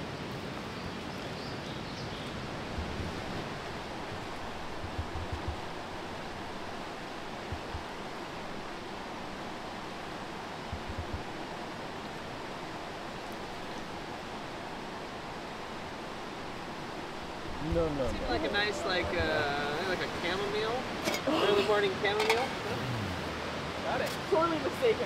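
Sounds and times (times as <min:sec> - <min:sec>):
running water rushing: 0:00.0 - 0:25.0
soft low thumps: 0:02.2 - 0:14.5.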